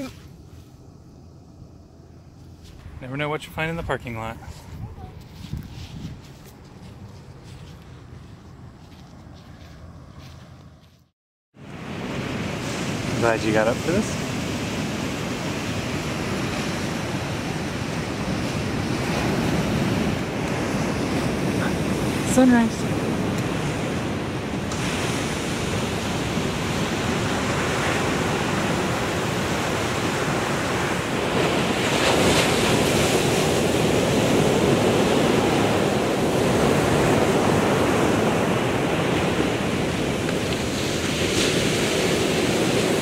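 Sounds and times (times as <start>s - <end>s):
surf breaking on a beach: 11.6s - 43.0s.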